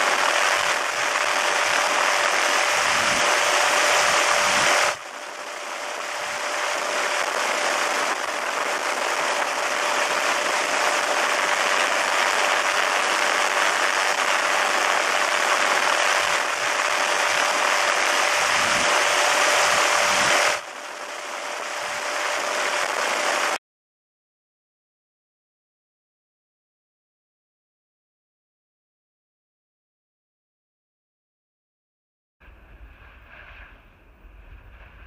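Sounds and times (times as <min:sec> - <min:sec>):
helicopter in flight: 0:00.0 - 0:23.6.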